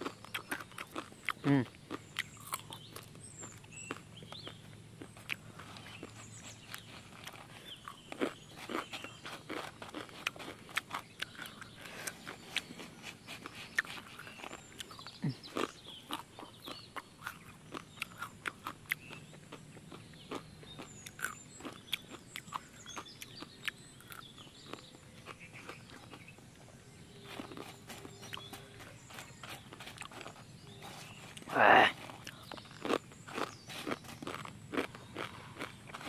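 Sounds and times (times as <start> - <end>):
chewing and crunching dry noodles: 0.0 - 36.0
wet mouth sounds: 6.7 - 19.2.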